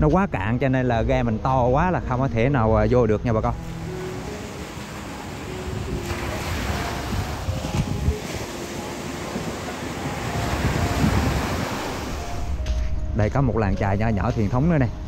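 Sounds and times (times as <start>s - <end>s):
wind buffeting microphone: 3.4s - 13.2s
surf washing onto beach: 3.6s - 12.4s.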